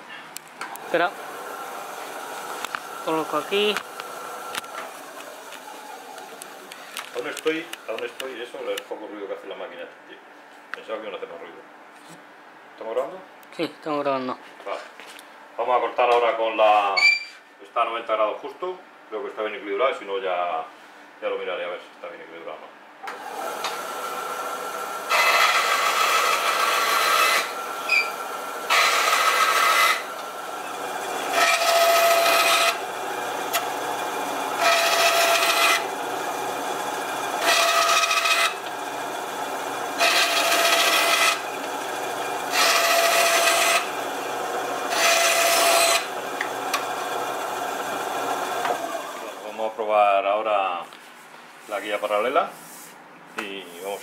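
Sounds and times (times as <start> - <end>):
band saw cutting wood: 0.8 - 8.2, 23.1 - 49.5
band saw running with a hum: 0.8 - 8.2, 23.1 - 49.6.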